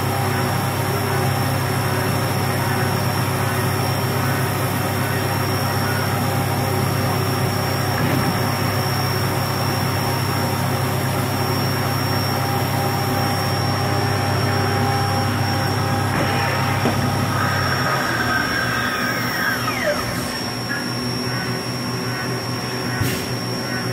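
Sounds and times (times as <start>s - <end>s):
machine hum: 0.0s - 23.9s
falling whines: 11.5s - 22.0s
milling machine cutting: 14.5s - 21.6s.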